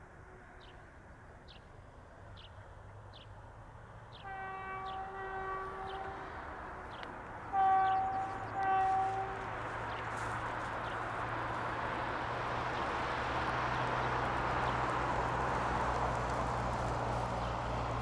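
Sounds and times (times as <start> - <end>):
locomotive horn blasts: 4.2 - 9.6.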